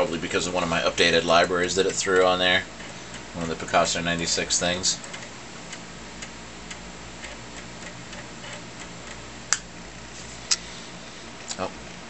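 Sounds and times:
disk drive ticking: 0.0s - 10.1s.

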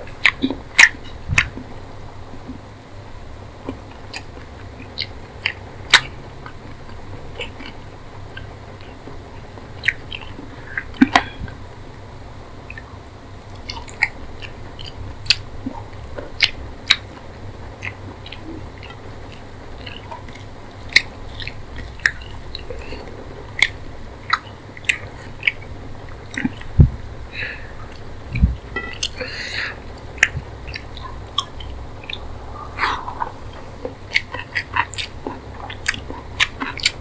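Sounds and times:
chewing food: 0.1s - 2.6s, 3.6s - 11.6s, 13.5s - 37.0s
wet mouth clicks: 13.6s - 17.2s, 17.8s - 25.6s, 27.9s - 37.0s.

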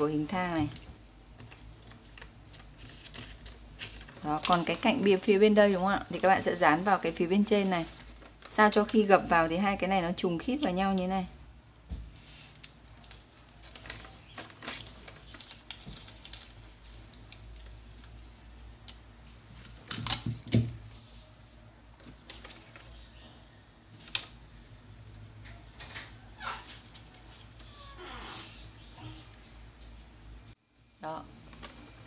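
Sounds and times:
paper crackling: 0.1s - 9.3s, 12.3s - 20.2s, 22.0s - 23.2s
paper rustling: 0.3s - 6.5s, 7.1s - 9.1s, 12.1s - 20.2s, 22.0s - 23.0s.

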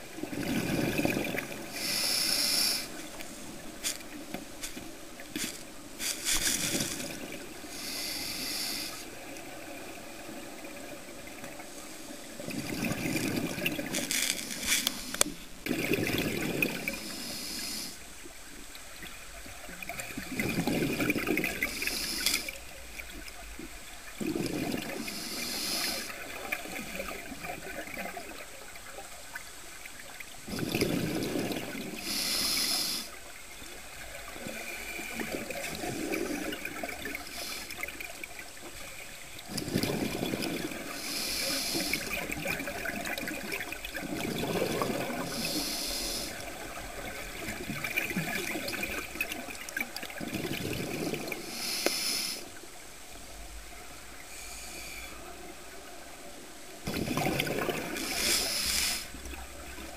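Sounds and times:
gurgle of exhaled bubbles: 0.0s - 4.7s, 12.3s - 14.2s, 15.6s - 17.1s, 19.0s - 29.2s, 30.5s - 32.3s, 33.6s - 38.6s, 39.4s - 51.8s, 56.8s - 59.9s
scuba regulator inhale hiss: 1.7s - 4.0s, 5.4s - 9.2s, 14.0s - 15.3s, 16.8s - 18.1s, 21.5s - 22.6s, 24.8s - 26.3s, 31.9s - 33.2s, 37.0s - 37.9s, 40.7s - 42.3s, 45.1s - 46.6s, 51.3s - 52.6s, 54.2s - 55.3s, 57.9s - 59.3s.

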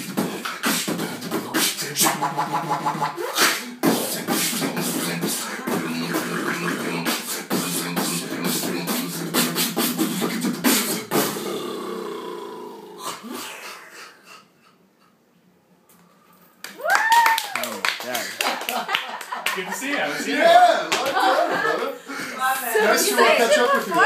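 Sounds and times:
beatboxing: 0.0s - 14.5s.

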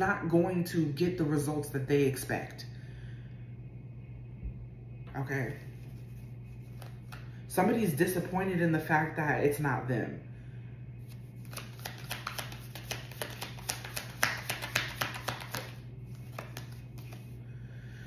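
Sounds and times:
low steady hum: 0.0s - 18.0s
cards being shuffled: 5.6s - 7.3s, 11.0s - 17.4s.

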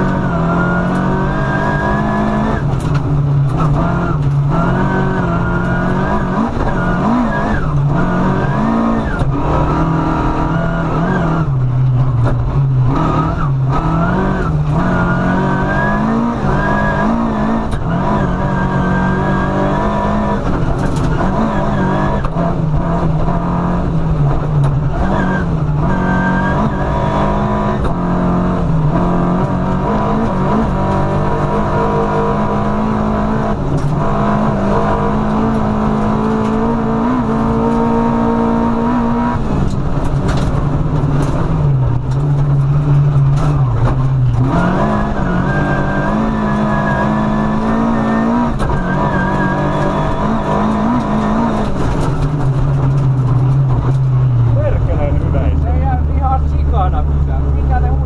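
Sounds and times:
car engine accelerating: 0.0s - 58.0s
gravel clattering against car underside: 2.5s - 4.6s, 20.5s - 21.4s, 39.6s - 45.2s, 48.1s - 57.0s.

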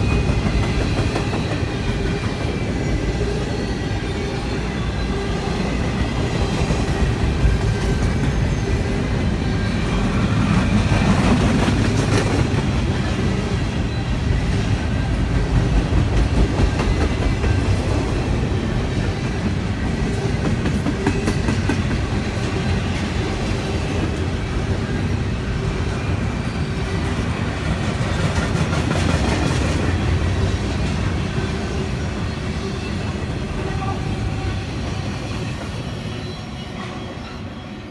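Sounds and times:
steel wheels clattering on rails: 0.0s - 3.5s, 5.8s - 25.1s, 25.9s - 31.4s
freight train rolling past: 0.0s - 37.9s.

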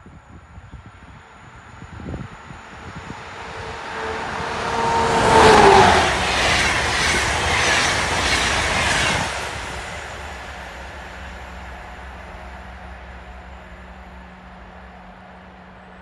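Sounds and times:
electric locomotive passing: 0.0s - 16.0s
locomotive tone dropping in pitch: 1.3s - 8.1s.

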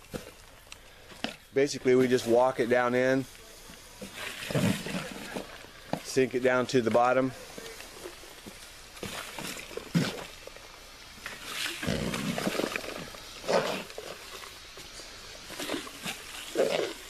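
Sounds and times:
plastic pipe scraping against dirt: 4.0s - 10.5s, 11.2s - 17.0s.

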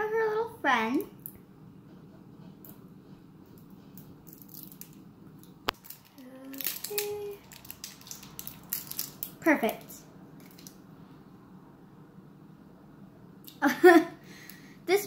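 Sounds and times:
plastic toy pieces clicking: 5.8s - 9.3s.

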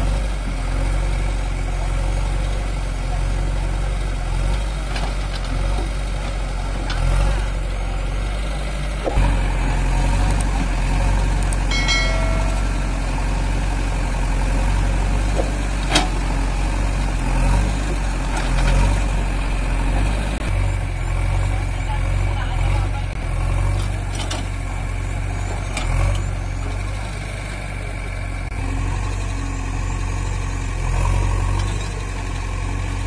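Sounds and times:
diesel engines idling: 0.0s - 33.0s.

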